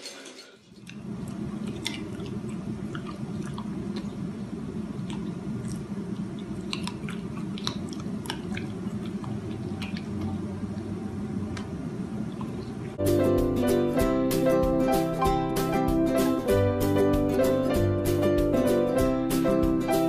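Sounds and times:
dog chewing and smacking: 0:00.7 - 0:12.9.

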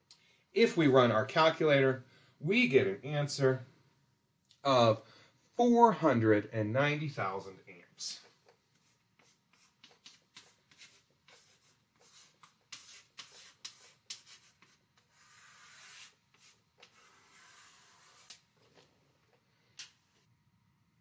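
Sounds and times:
chalk writing on blackboard: 0:08.8 - 0:18.4.

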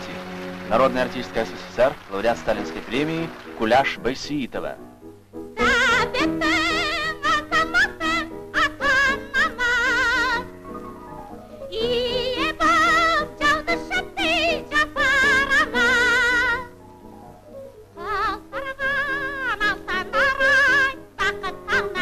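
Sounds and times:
instrumental accompaniment: 0:00.0 - 0:06.0, 0:08.4 - 0:13.9
woman singing soprano: 0:05.6 - 0:10.5, 0:11.6 - 0:16.8, 0:18.0 - 0:22.0.

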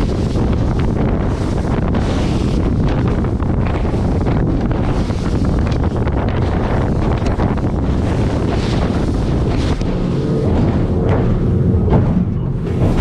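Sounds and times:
hull rushing over waves: 0:00.0 - 0:13.0
outboard motor: 0:00.0 - 0:13.0
wind buffeting microphone: 0:00.0 - 0:13.0.

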